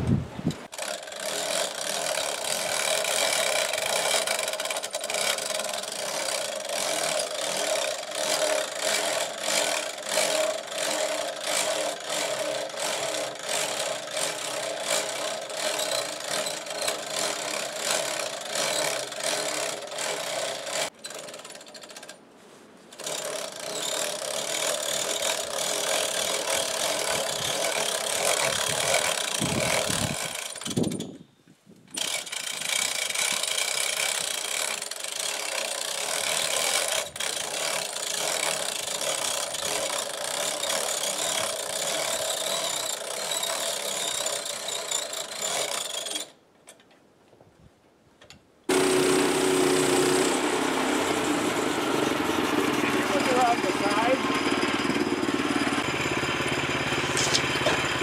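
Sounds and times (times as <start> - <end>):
winch ratchet clicking: 0.6 - 22.2, 22.9 - 31.1, 31.9 - 46.8
steady mechanical hum: 48.7 - 58.0.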